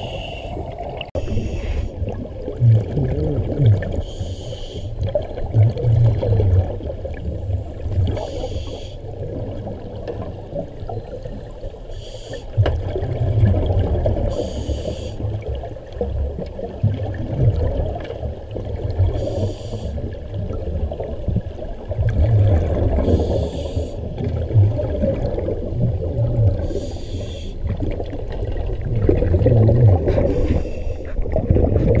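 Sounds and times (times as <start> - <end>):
bubbling exhalations underwater: 0.0 - 4.0, 5.0 - 8.2, 20.4 - 23.5, 24.1 - 26.8, 27.6 - 32.0
low underwater rumble: 0.0 - 11.9, 12.5 - 14.6, 15.2 - 32.0.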